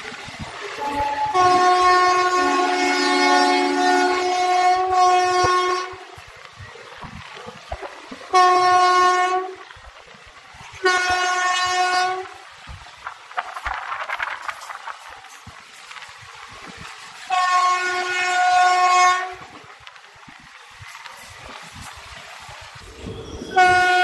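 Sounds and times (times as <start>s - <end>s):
locomotive air horn blasts: 0.8s - 6.1s, 8.3s - 9.6s, 10.8s - 12.4s, 17.3s - 19.5s, 22.9s - 24.0s.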